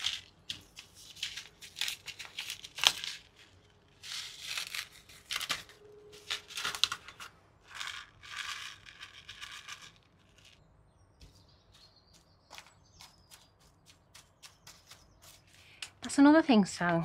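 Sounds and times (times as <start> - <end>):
paper packet crinkling: 0.0 - 10.6.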